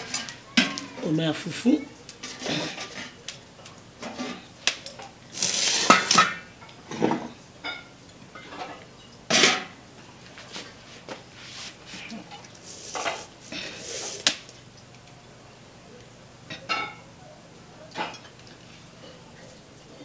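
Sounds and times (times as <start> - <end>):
metal pots clattering: 2.2 - 3.2, 4.0 - 9.8.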